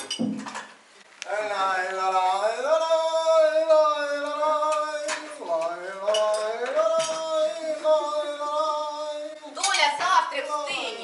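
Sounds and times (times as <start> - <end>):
person singing slow melody: 1.2 - 9.5.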